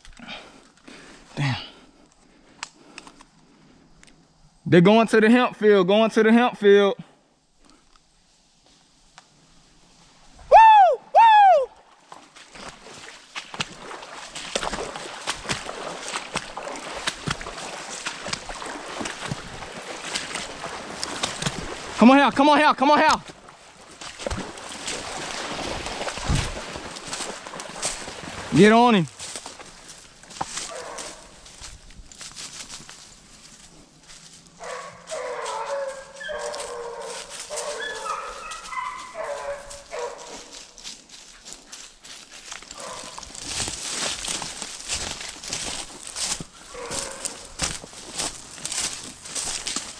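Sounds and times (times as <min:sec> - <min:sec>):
footsteps sloshing through water: 0:11.7 - 0:49.9
hounds baying: 0:30.6 - 0:31.4, 0:34.6 - 0:40.5, 0:46.6 - 0:47.8.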